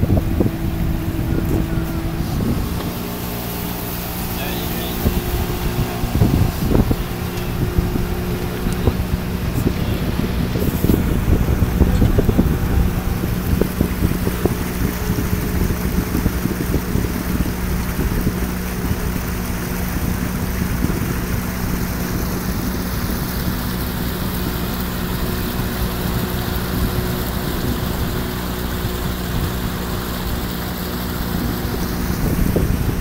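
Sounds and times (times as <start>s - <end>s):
outboard motor droning: 0.0s - 33.0s.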